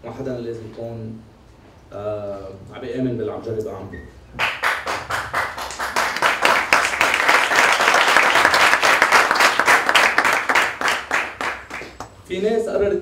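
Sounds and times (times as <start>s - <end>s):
audience applauding: 4.4s - 12.2s.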